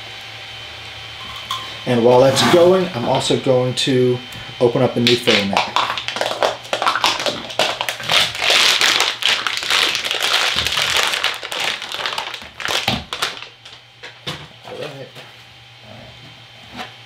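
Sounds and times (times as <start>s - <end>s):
plastic bag crinkling: 5.1s - 14.2s.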